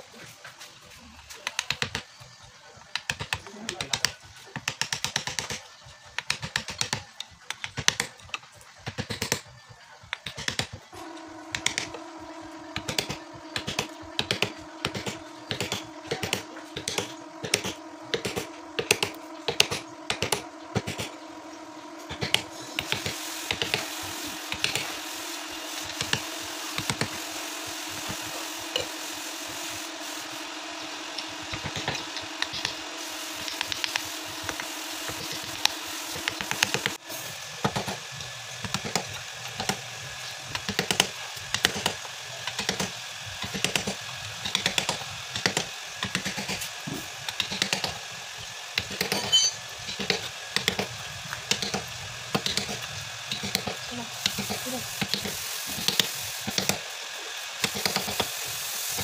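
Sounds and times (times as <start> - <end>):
steady low hum: 10.9 - 37.2.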